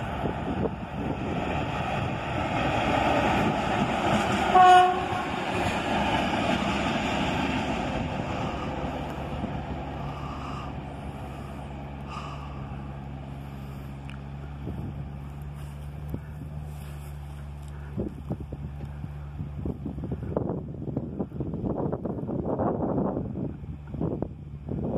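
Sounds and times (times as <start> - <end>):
diesel locomotive passing: 0.0 - 24.9
train horn blast: 4.2 - 5.6.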